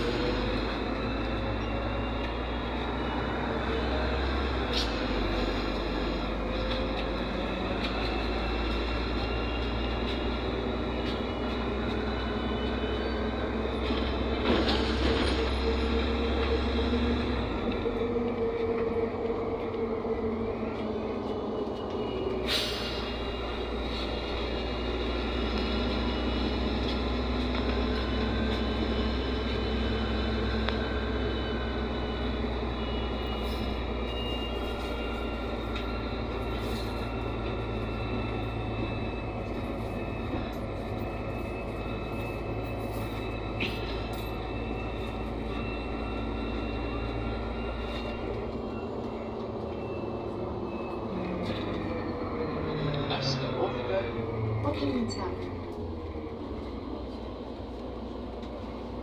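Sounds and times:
bus diesel engine: 0.0s - 59.0s
road rumble: 0.0s - 59.0s.

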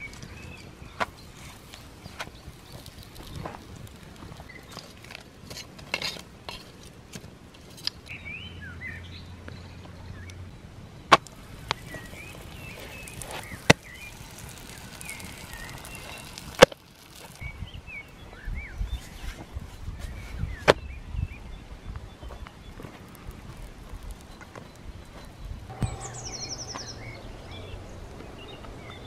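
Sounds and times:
small birds chirping: 0.0s - 5.4s, 7.8s - 29.0s.

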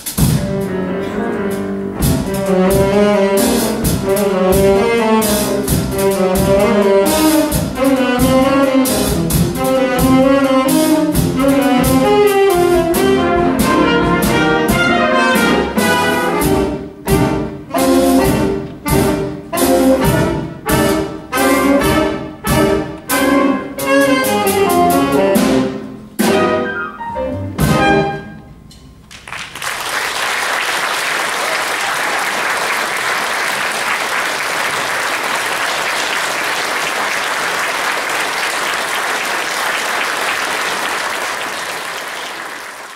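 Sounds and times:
big band playing punchy chords: 0.0s - 28.6s
audience applause: 29.1s - 42.9s.

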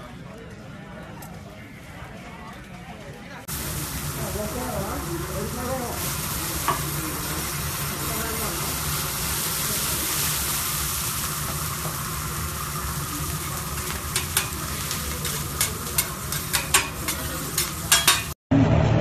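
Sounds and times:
food sizzling on griddle: 3.5s - 18.4s
metal utensils clicking on plate: 13.9s - 14.6s, 15.2s - 18.3s.

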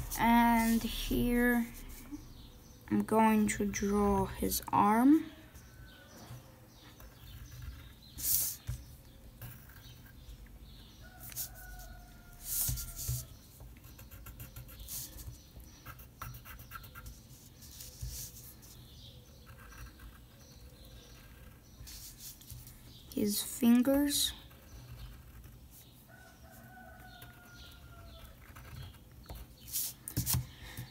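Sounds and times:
pencil scratching on paper: 0.0s - 2.2s, 7.2s - 8.8s, 11.1s - 18.8s, 19.4s - 22.6s, 28.2s - 30.4s.

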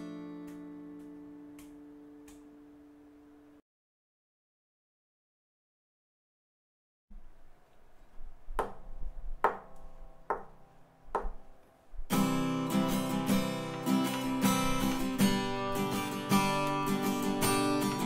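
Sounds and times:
fingerpicked acoustic guitar: 0.0s - 3.5s, 8.8s - 18.0s
light tapping: 8.5s - 12.2s.

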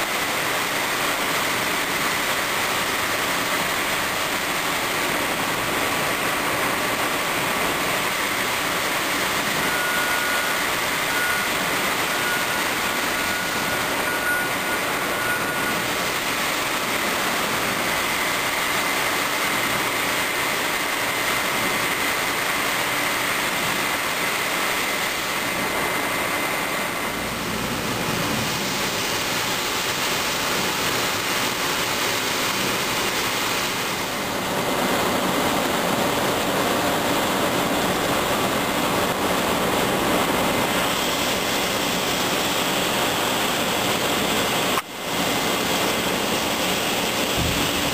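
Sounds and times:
faint high whine: 0.0s - 47.9s.

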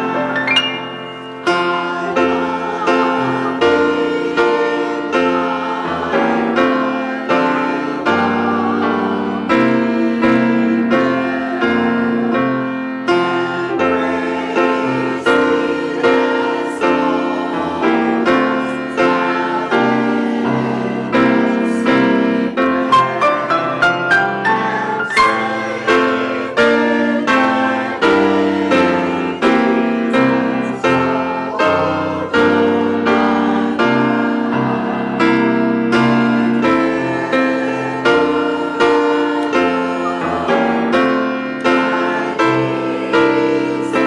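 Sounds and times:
grand piano playing church music: 0.0s - 44.0s.

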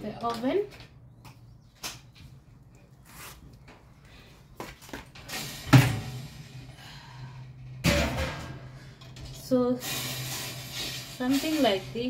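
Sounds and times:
metal rack scraping and clanking: 5.1s - 12.0s.

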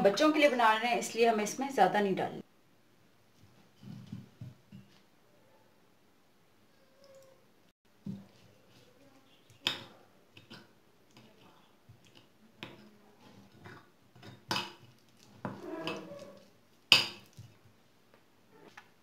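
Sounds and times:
spoon scraping wet batter: 10.3s - 16.6s.

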